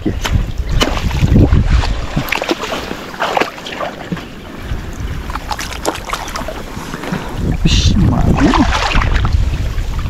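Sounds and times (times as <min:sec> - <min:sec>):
water splashing and sloshing: 0:00.0 - 0:10.0.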